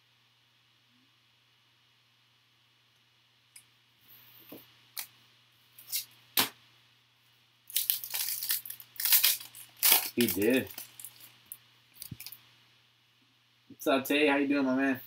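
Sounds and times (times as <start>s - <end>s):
trading cards and foil pack handled: 7.7s - 12.4s.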